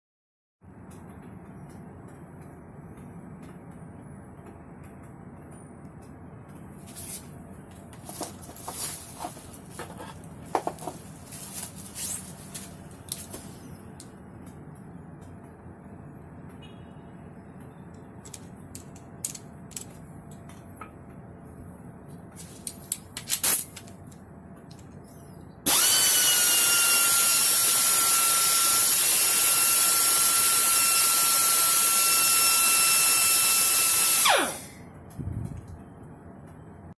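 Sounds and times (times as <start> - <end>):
pneumatic die grinder whining: 25.7 - 34.8.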